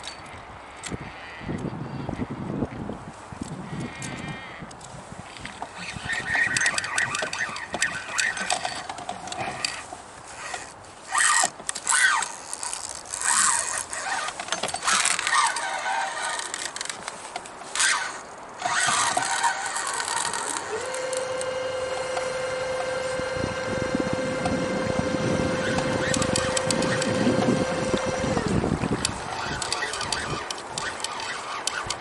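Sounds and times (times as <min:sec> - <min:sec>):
fishing reel clicks and scrapes: 0:05.3 - 0:32.0.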